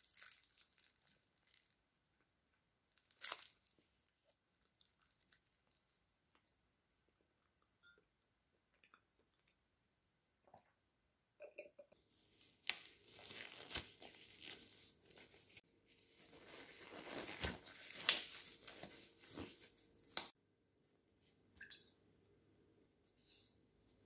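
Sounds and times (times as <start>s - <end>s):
paper wrapper crinkling: 0.0s - 1.8s, 3.0s - 4.1s, 12.3s - 20.3s
disposable gloves crackling: 12.4s - 20.3s.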